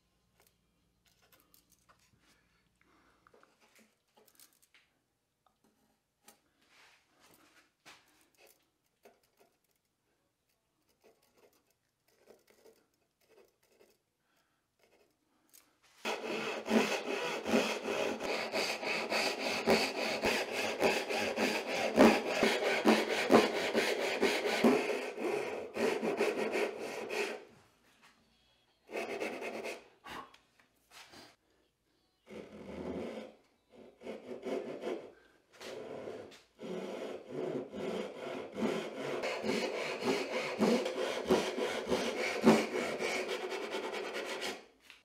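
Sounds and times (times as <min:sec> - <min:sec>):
saw cutting wood: 0:16.0 - 0:27.5, 0:28.9 - 0:29.8, 0:32.3 - 0:44.6.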